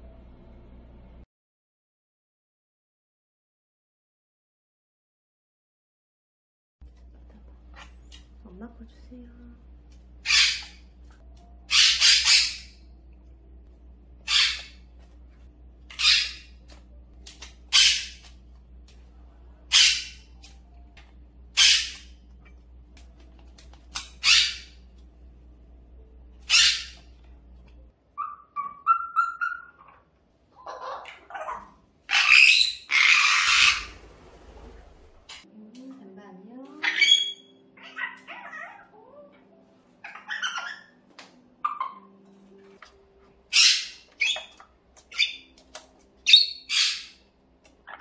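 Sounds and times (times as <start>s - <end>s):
parrot screaming: 10.2s - 10.8s, 11.7s - 12.8s, 14.2s - 14.8s, 15.9s - 16.6s, 17.7s - 18.2s, 19.7s - 20.3s, 21.6s - 22.1s, 24.2s - 24.8s, 26.4s - 27.1s, 28.2s - 34.0s, 36.8s - 39.3s, 40.0s - 41.0s, 43.5s - 45.5s, 46.2s - 47.2s
parrot harsh contact calls: 14.2s - 14.8s, 24.2s - 24.8s, 30.6s - 34.0s
wings flapping: 16.6s - 19.1s, 33.1s - 35.4s.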